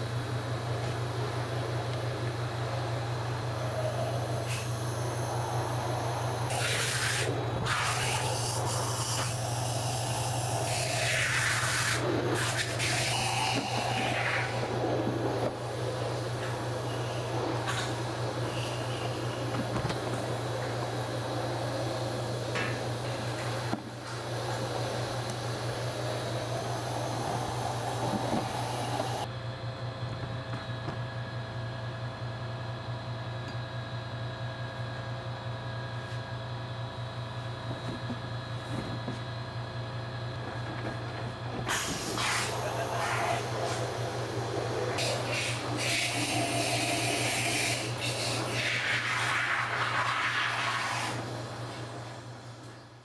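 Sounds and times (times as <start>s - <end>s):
low hum: 0.8s - 29.3s.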